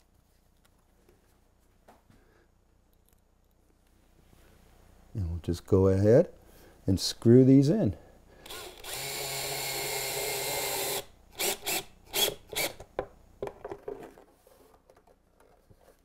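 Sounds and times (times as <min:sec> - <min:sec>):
cordless drill driving screw: 0:08.4 - 0:12.8.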